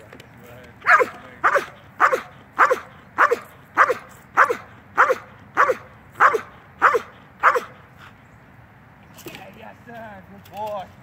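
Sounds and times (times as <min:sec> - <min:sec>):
dog barking sharply: 0:00.8 - 0:07.8.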